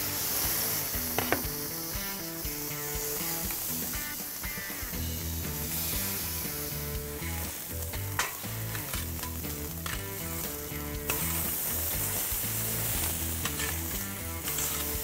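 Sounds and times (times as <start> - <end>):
steaks sizzling on a grate: 0.0 - 15.0
metal tongs clicking on grate: 8.0 - 11.6, 12.9 - 15.0.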